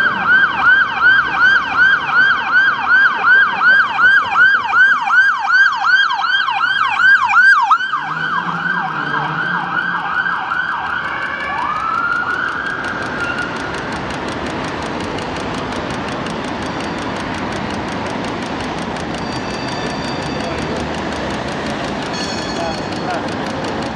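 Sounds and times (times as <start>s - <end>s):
ambulance siren yelping: 0.0s - 14.0s
street and tram noise: 0.0s - 23.9s
fast regular ticking: 10.8s - 23.9s.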